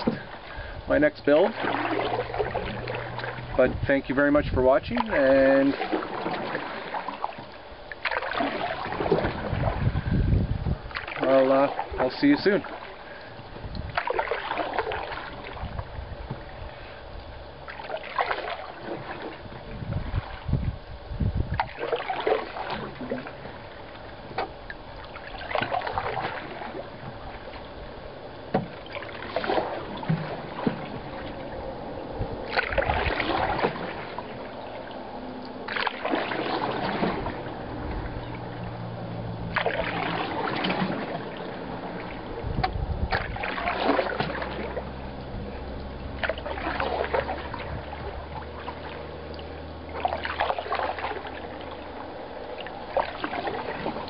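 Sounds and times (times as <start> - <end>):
paddle strokes in water: 0.0 - 54.0
water trickling: 4.7 - 54.0.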